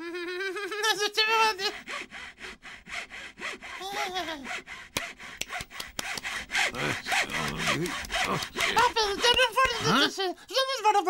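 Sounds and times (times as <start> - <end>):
handsaw cutting wood: 0.8 - 10.4
sharp clicks: 4.9 - 6.4, 7.0 - 9.8.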